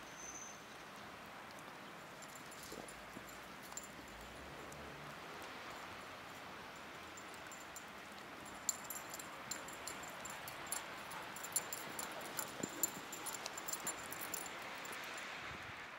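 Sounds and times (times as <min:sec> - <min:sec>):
paws clicking on snow: 0:02.2 - 0:05.6, 0:07.2 - 0:15.2.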